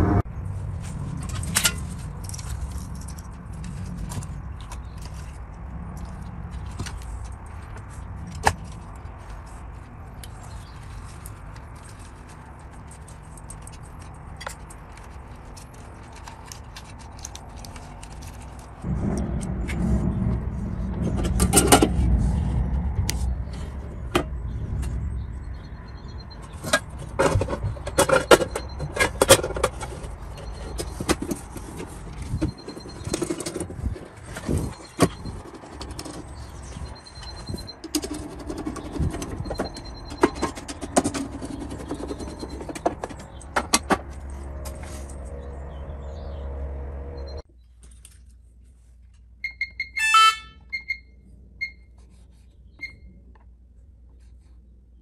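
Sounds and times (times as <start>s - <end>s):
hands handling wiring and plastic: 0.6s - 18.9s, 26.1s - 45.4s, 47.6s - 51.0s
low rumble: 18.8s - 25.9s.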